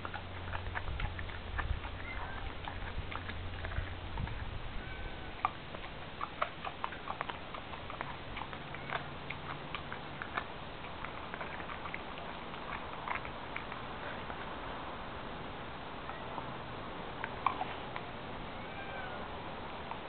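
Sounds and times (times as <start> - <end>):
dog gnawing meat and bone: 0.0 - 14.9, 17.2 - 18.1.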